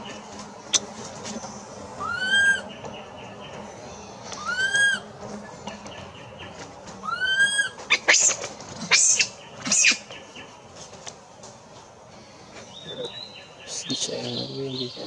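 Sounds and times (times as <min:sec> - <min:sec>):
baby monkey crying: 0:02.0 - 0:02.6, 0:04.4 - 0:05.1, 0:07.0 - 0:10.0.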